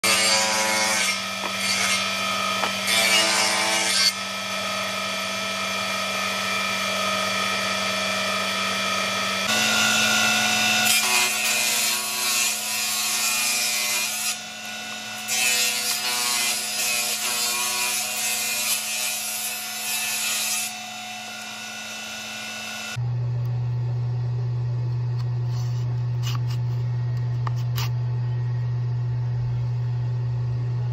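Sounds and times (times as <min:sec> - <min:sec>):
table saw cutting wood: 0:00.0 - 0:23.0.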